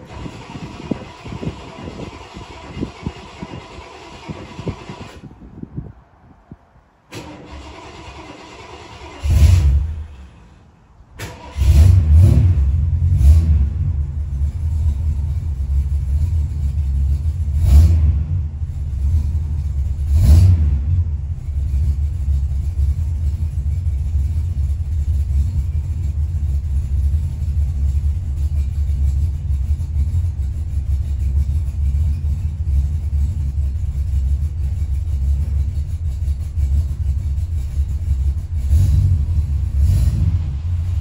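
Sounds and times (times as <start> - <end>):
car engine cranking and starting: 0.0 - 5.5, 7.1 - 41.0
car engine idling: 0.0 - 5.5, 6.8 - 41.0
engine revving: 7.1 - 10.1, 11.2 - 41.0.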